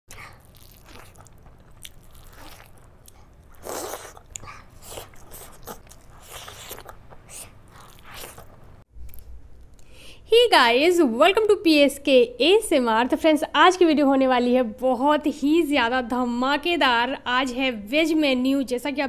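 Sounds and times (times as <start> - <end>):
mouth chewing food: 0.1 - 9.2.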